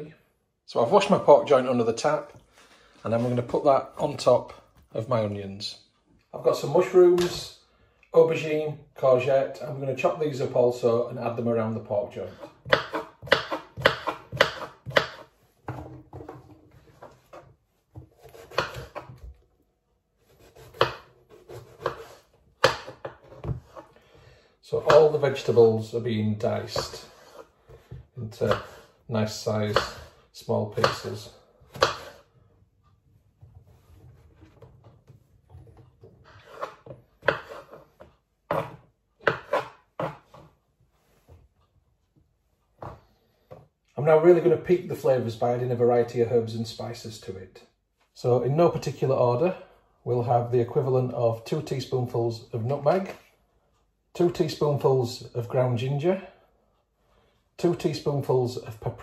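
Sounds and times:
knife chopping on wooden board: 12.4 - 19.3, 20.3 - 23.9, 29.7 - 30.1, 30.8 - 31.1, 31.7 - 32.2, 36.3 - 40.5.

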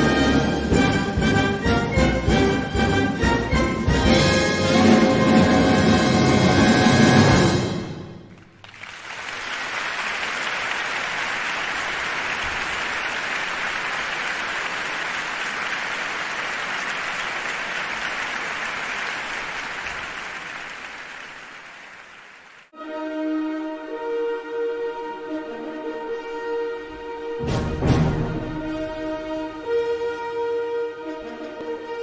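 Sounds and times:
music with sustained notes: 0.0 - 7.9, 22.8 - 32.0
applause-like patter: 8.3 - 22.7.

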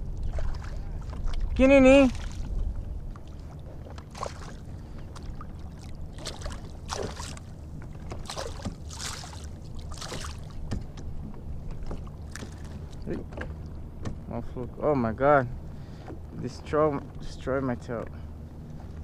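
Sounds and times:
low rumble: 0.0 - 17.4
fish splashing in water: 5.2 - 10.6.

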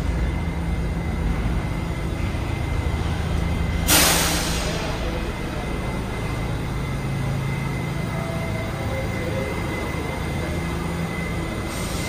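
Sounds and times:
faint high whine: 0.0 - 12.0
low rumble of city vehicles: 0.0 - 12.0.

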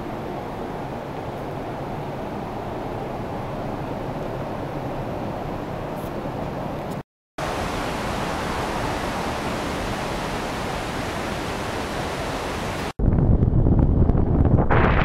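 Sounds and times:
steady rushing noise: 7.4 - 15.0.

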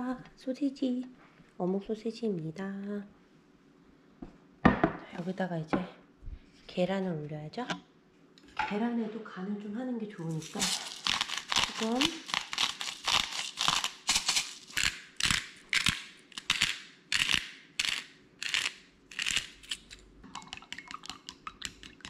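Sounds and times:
spice grinder grinding: 10.3 - 20.0.

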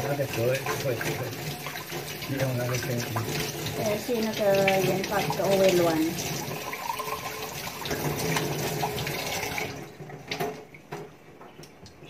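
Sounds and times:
water running from a tap: 0.0 - 10.7.

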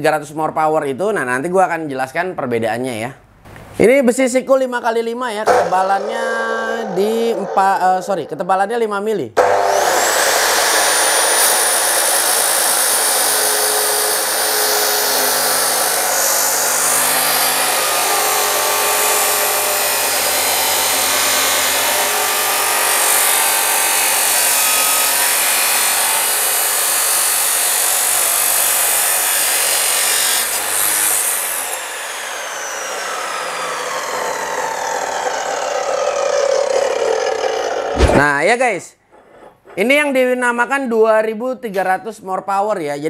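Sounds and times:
saw motor whine: 5.5 - 8.4, 9.4 - 38.2
abrasive saw grinding steel: 5.5 - 8.7, 9.4 - 38.4.

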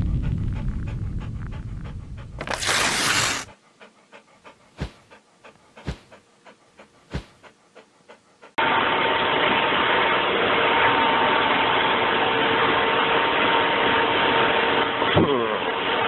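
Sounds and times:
low rumble: 0.0 - 2.4
dog panting: 0.0 - 8.6.

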